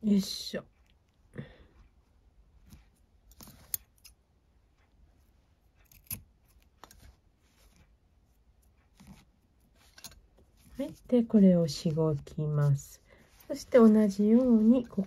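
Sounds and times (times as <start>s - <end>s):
scissors snipping cord: 2.6s - 4.2s, 5.7s - 7.9s
cord handling: 8.7s - 11.1s.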